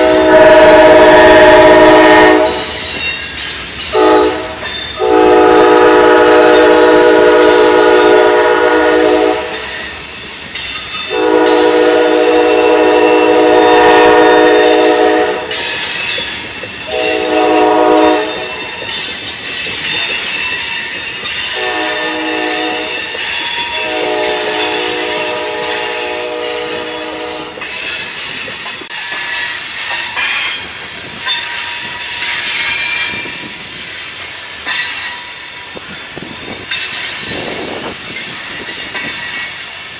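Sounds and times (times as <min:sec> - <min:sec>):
locomotive horn blasts: 0:00.0 - 0:02.8, 0:03.9 - 0:09.7, 0:11.1 - 0:15.6, 0:16.9 - 0:18.7, 0:21.5 - 0:23.0, 0:23.7 - 0:27.6
train wheel squeal: 0:00.0 - 0:39.9.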